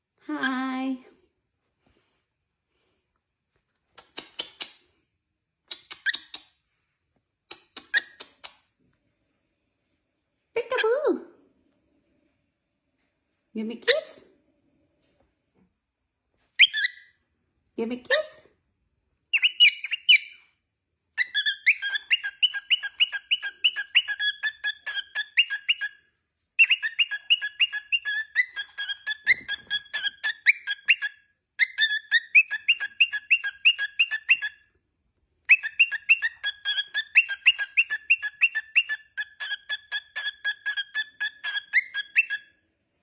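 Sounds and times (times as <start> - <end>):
cockatiel chattering chirps: 19.4 - 20.4, 21.2 - 26.0, 26.6 - 34.6, 35.5 - 42.5.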